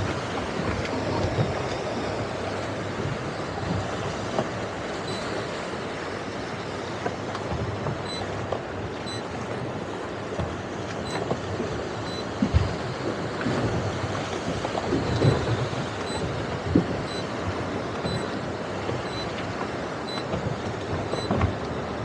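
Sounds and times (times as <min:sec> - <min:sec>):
boat engine: 0:00.0 - 0:22.0
water splashing against boat: 0:00.0 - 0:22.0
wind buffeting microphone: 0:12.4 - 0:22.0.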